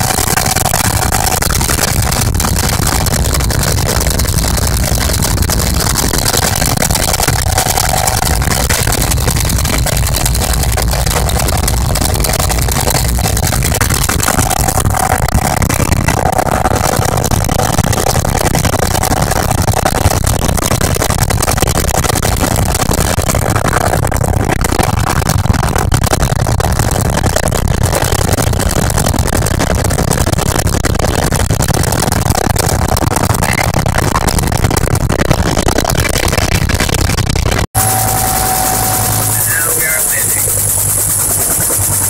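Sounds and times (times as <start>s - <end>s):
helicopter engine and rotor noise: 0.0s - 19.8s, 37.8s - 42.0s.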